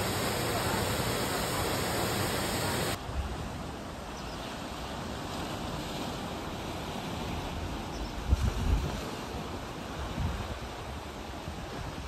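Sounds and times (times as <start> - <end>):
waterfall rushing into pool: 0.0 - 4.0
ocean surf: 0.0 - 12.0
wind: 0.0 - 12.0.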